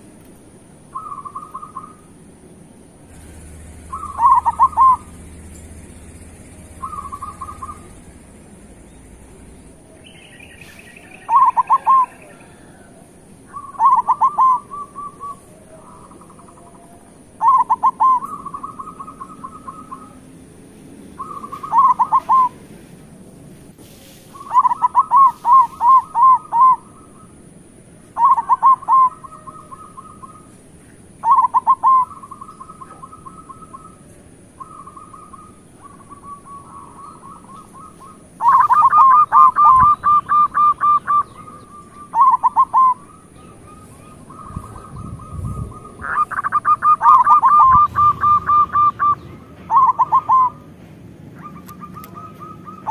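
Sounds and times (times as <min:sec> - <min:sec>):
dove cooing song: 0:00.9 - 0:02.2, 0:03.0 - 0:20.4, 0:21.0 - 0:23.0, 0:24.2 - 0:52.9
faint dove cooing: 0:11.1 - 0:20.2, 0:21.2 - 0:22.8, 0:31.2 - 0:50.6.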